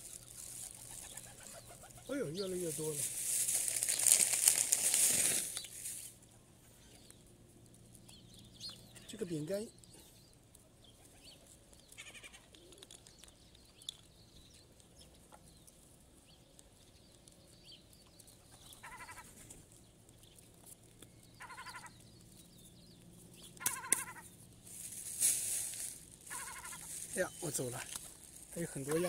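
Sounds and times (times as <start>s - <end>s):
birds short nasal calls: 0.0s - 7.0s, 12.0s - 12.7s, 18.6s - 19.5s, 21.4s - 22.1s, 23.4s - 24.4s, 25.2s - 27.8s.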